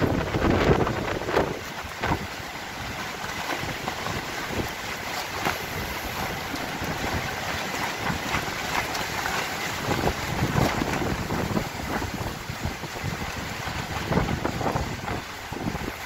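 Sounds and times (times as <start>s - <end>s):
gusty wind on microphone: 0.0s - 16.0s.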